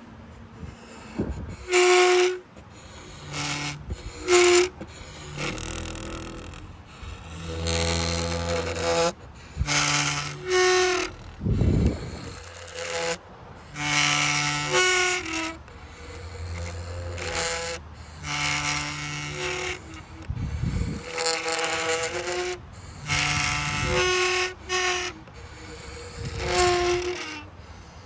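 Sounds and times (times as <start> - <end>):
wooden instrument pitched notes: 0.5 - 27.8.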